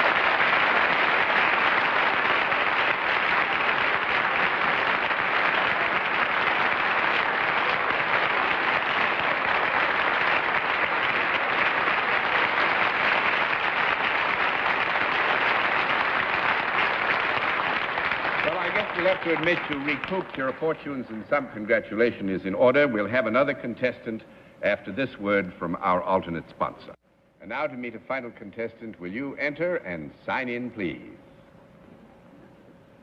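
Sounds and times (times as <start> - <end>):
audience applauding: 0.0 - 21.1.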